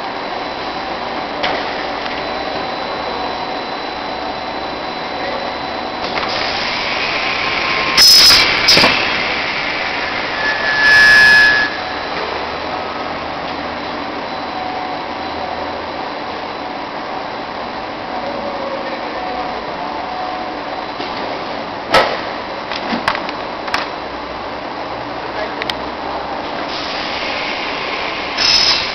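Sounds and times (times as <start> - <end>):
pipe cutting machine running: 0.0 - 16.1, 26.7 - 28.9
pneumatic hissing bursts: 6.2 - 12.0, 26.7 - 28.9
saw cutting pipe: 6.3 - 12.0.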